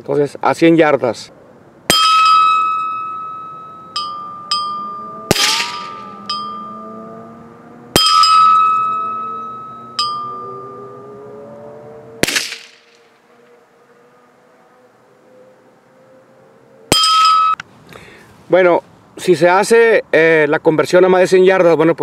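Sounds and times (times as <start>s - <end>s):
bullets ringing steel bell target: 1.9s - 7.0s, 7.9s - 11.2s, 16.9s - 17.6s
loud gunshot cracks: 5.3s - 6.1s, 12.2s - 12.9s.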